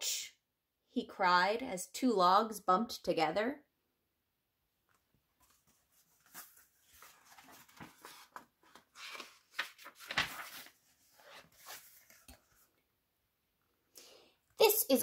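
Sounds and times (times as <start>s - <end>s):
paper pages turning: 4.9s - 12.8s.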